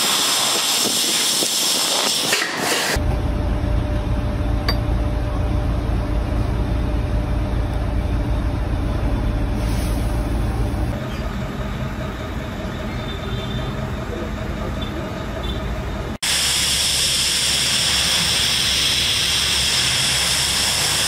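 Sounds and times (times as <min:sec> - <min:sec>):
low mechanical hum: 0:03.0 - 0:16.2.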